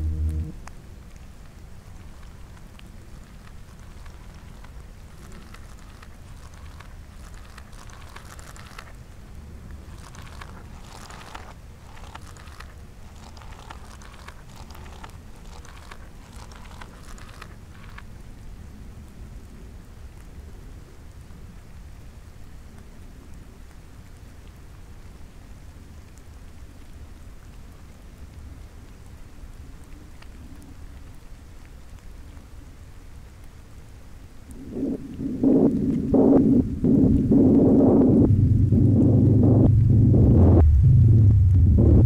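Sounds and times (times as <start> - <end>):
low rumble: 0.0 - 1.1, 34.6 - 42.0
faint wavering hum: 0.0 - 1.2, 34.5 - 42.0
reversed crackling: 0.0 - 18.2, 34.7 - 42.0
faint ticks: 0.0 - 36.0
low rumble and hiss: 0.0 - 42.0.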